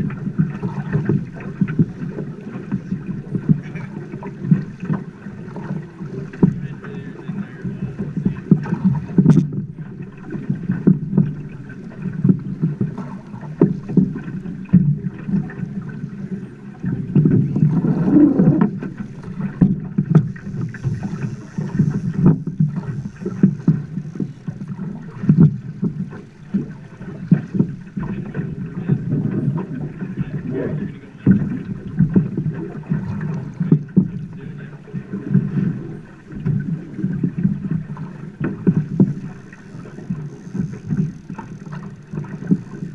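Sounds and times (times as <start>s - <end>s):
water slapping against boat hull: 0.0s - 42.9s.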